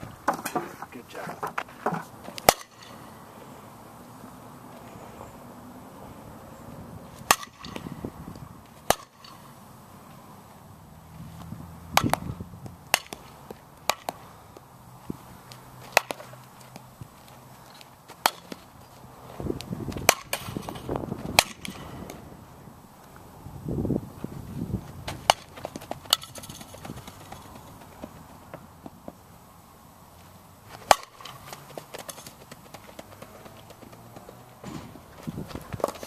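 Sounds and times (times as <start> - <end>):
bat striking softballs: 0.2 - 0.8, 1.4 - 3.1, 7.1 - 8.1, 8.7 - 9.6, 11.4 - 14.7, 15.5 - 18.8, 19.6 - 22.3, 25.0 - 29.2, 30.7 - 36.0.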